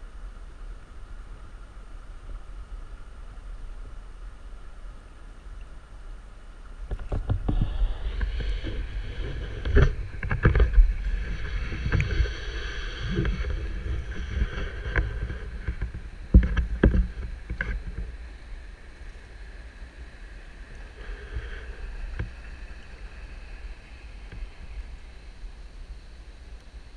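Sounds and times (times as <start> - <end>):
low rumble: 6.7 - 26.0
water sloshing and splashing: 6.8 - 18.2.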